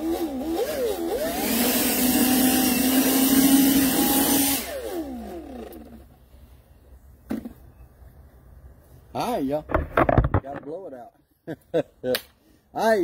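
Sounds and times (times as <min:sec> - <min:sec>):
leaf blower whining: 0:00.0 - 0:06.5.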